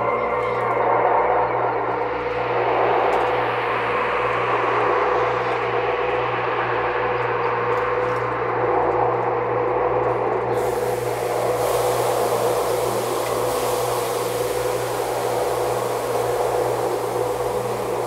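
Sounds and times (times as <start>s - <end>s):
machine hum and hiss: 0.0s - 18.0s
bright high hiss: 10.6s - 18.0s.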